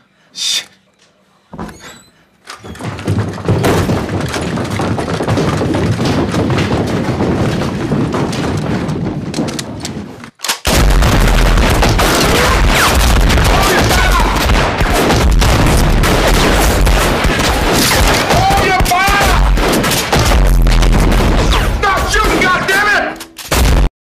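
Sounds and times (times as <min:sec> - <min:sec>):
heavy gunfire: 0:03.4 - 0:09.4, 0:10.7 - 0:23.9.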